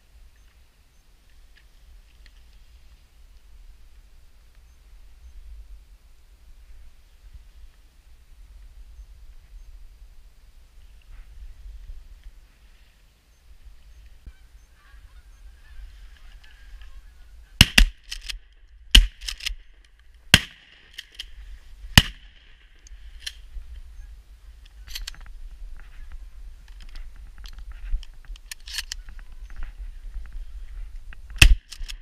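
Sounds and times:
geese honking: 14.2s - 17.6s
loud sharp cracks: 17.6s - 19.6s, 20.3s - 21.2s, 22.0s - 22.7s, 31.4s - 32.0s.

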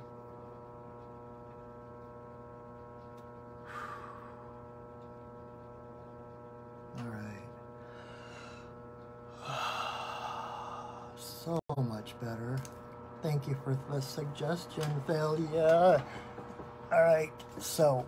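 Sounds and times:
steady low hum: 0.0s - 18.0s
man breathing and sighing: 7.8s - 11.2s.

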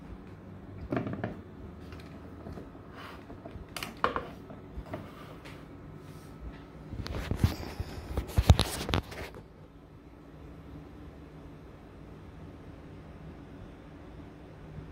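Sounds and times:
low steady hum: 0.0s - 14.9s.

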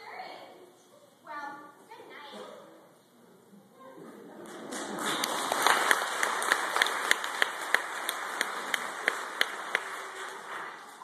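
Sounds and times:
audience applauding: 4.1s - 11.0s
close sharp hand clapping: 4.5s - 11.0s.

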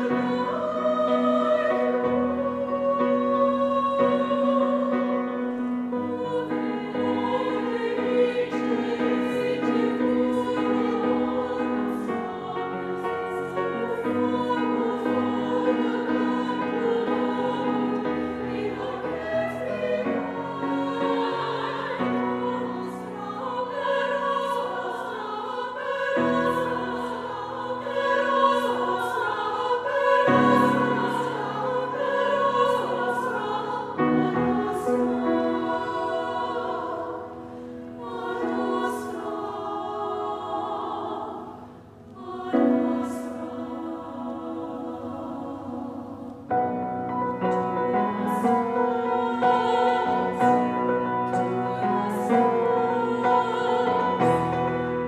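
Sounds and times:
women's choir singing chords: 0.0s - 55.0s.

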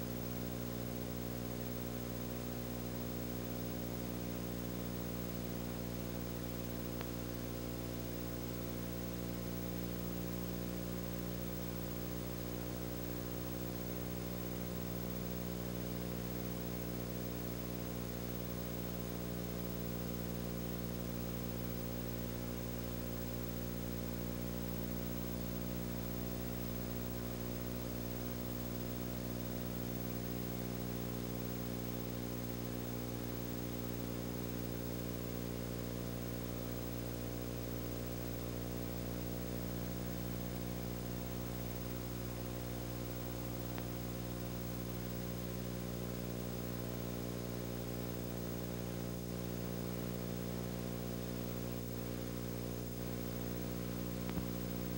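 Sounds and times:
electrical hum: 0.0s - 54.9s.

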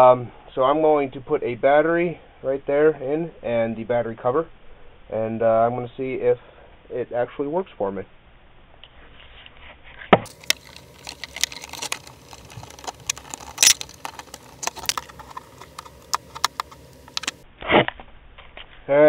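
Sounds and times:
plastic and metal clicks: 10.3s - 17.4s.

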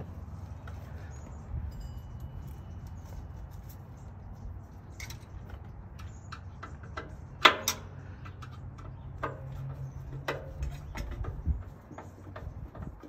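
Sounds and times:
hand tools tapping on steel: 4.9s - 13.0s.

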